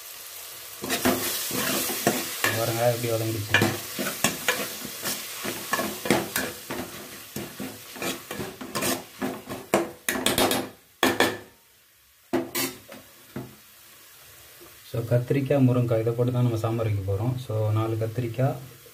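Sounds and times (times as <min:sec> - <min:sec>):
ladle scraping metal pot: 0:03.5 - 0:10.6.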